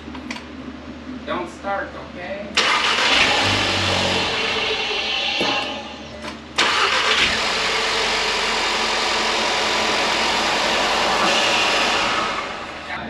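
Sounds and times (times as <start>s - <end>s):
car engine starting and running: 2.6s - 13.0s.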